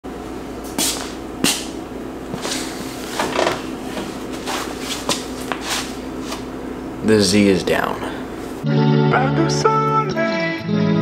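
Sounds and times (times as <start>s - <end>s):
steady low hum: 0.1s - 8.7s.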